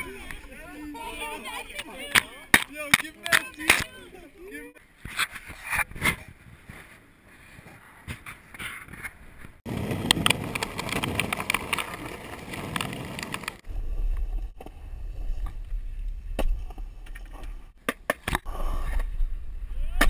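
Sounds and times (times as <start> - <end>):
skateboard wheels on asphalt: 0.0 - 18.3
skateboard wheels on concrete: 0.0 - 20.0
skateboard clattering: 9.7 - 13.6.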